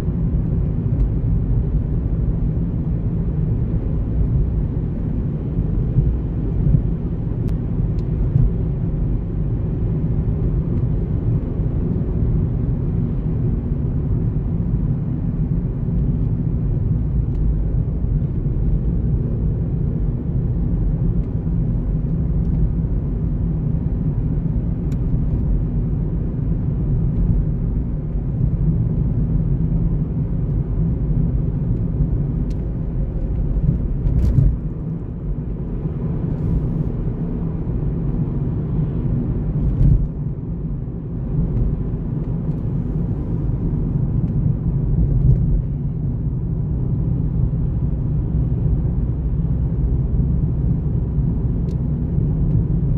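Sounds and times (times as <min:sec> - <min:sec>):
car tyre and engine rumble: 0:00.0 - 0:52.9.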